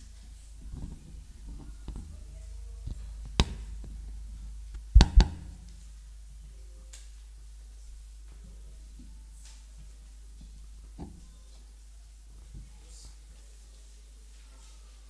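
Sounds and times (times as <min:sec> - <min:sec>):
sound system hum: 0:00.0 - 0:12.7
microphone handling knocks: 0:05.0 - 0:05.6
sharp thumps on microphone: 0:05.0 - 0:05.6.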